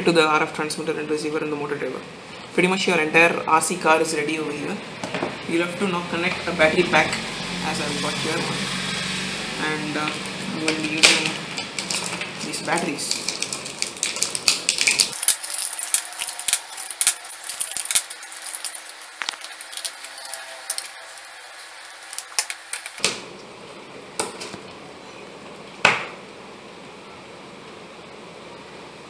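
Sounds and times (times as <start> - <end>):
batteries clicking and rattling: 10.8 - 21.0
packaging rustling: 10.8 - 23.0.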